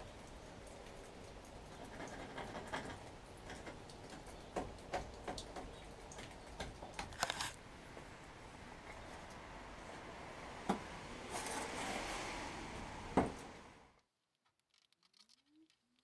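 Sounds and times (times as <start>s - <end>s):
hands tapping and scraping fibreglass: 14.2s - 16.0s.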